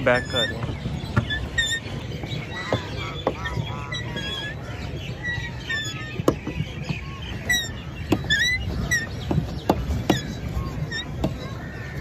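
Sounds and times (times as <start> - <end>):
low churn of water: 0.0 - 12.0
geese honking: 2.6 - 6.1.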